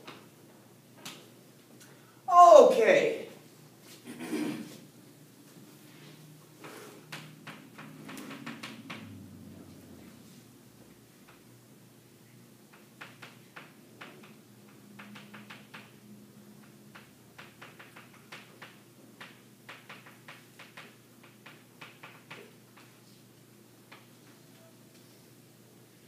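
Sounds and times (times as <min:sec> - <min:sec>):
low room hum: 0:00.0 - 0:26.0
chalk tapping on a blackboard: 0:16.6 - 0:23.0.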